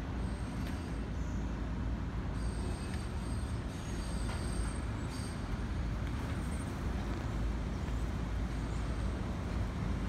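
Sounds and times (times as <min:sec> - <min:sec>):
distant subway train rumble: 0:00.0 - 0:10.0
street traffic: 0:00.0 - 0:10.0.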